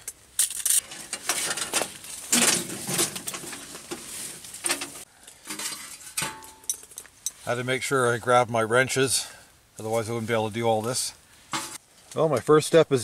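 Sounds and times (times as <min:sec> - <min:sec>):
rustling: 0:00.4 - 0:07.6, 0:09.8 - 0:12.2
metal knocks and clanks: 0:00.8 - 0:07.0.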